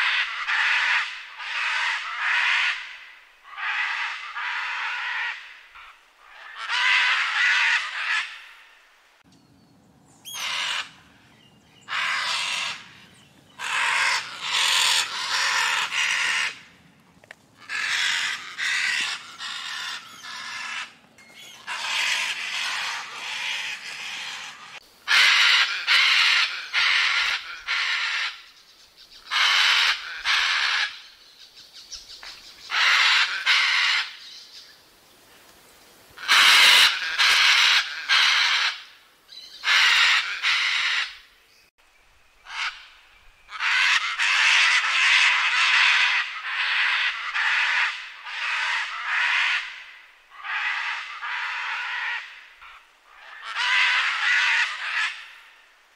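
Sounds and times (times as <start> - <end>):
macaws squawking harshly: 0.0 - 8.7, 10.3 - 11.3, 11.9 - 16.8, 17.6 - 28.5, 29.2 - 31.1, 32.7 - 34.3, 36.2 - 41.3, 42.4 - 55.6.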